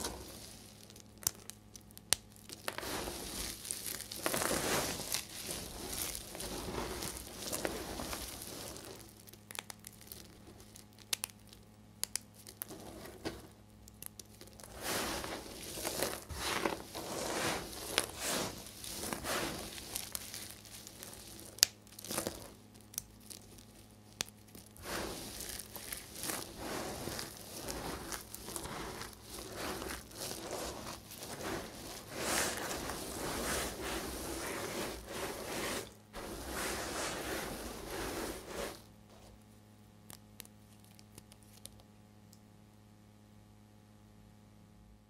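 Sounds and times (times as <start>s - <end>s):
hands crunching dry soap chips: 0.0s - 38.8s, 40.0s - 41.9s.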